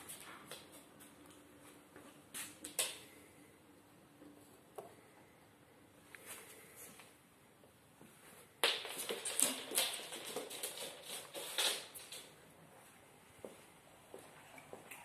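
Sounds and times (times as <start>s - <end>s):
dog claws scrabbling on hard floor: 8.6s - 12.3s.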